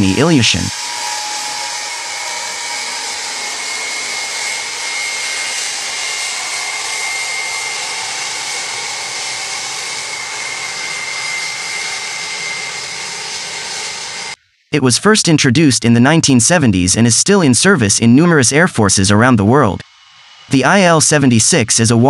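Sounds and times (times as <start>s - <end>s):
high jet engine whine: 0.0s - 14.4s, 19.5s - 22.0s
jet engines rushing: 0.0s - 14.4s, 19.5s - 22.0s.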